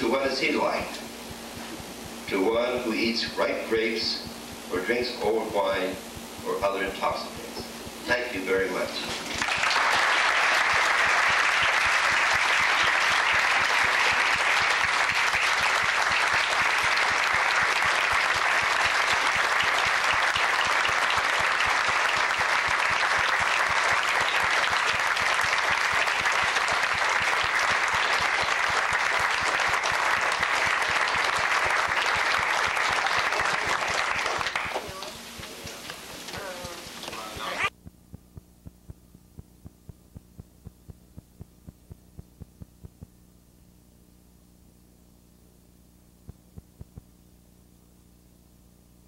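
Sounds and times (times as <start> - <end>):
voices: 2.2 - 9.2, 33.2 - 37.7
audience applauding: 9.1 - 35.8.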